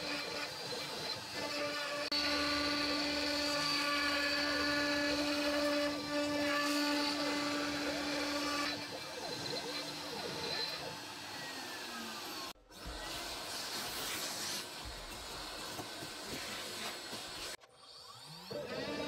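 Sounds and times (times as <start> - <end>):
router spindle high-pitched whine: 0.0 - 13.4, 17.6 - 19.0.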